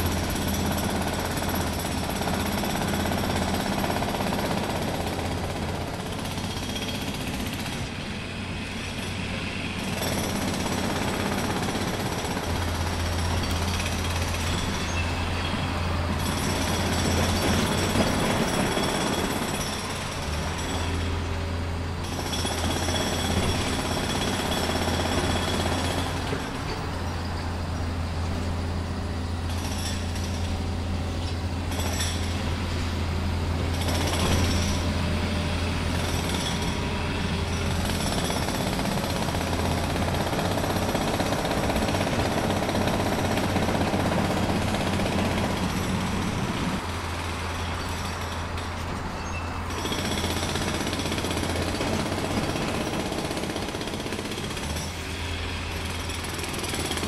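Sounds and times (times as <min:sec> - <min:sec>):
jackhammer-like mechanical rattling: 0:09.8 - 0:21.1, 0:29.4 - 0:30.6, 0:31.2 - 0:32.8, 0:33.7 - 0:34.9, 0:35.9 - 0:57.0.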